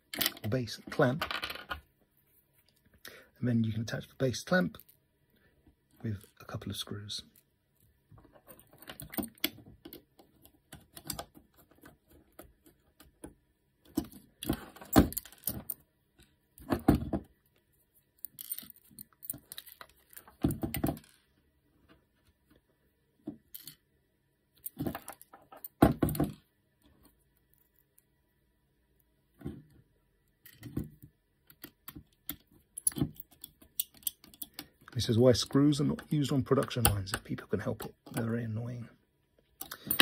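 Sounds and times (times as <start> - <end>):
screwdriver and screws rattling: 31.5 - 34.7.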